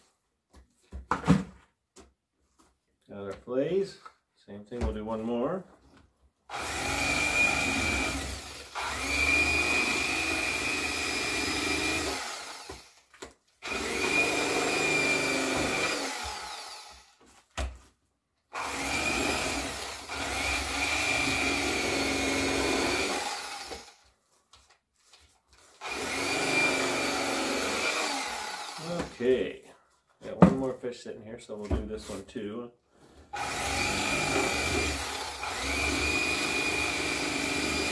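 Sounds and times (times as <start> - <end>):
electric knife whining: 6.5 - 17.2, 18.6 - 24.0, 25.8 - 29.2, 33.4 - 37.9.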